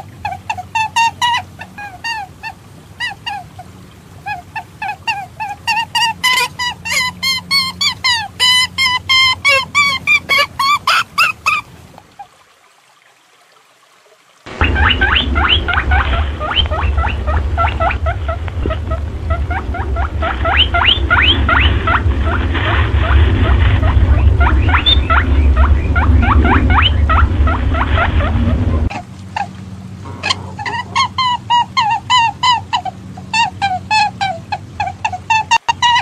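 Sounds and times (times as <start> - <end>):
steady low rumble: 14.5 - 34.8.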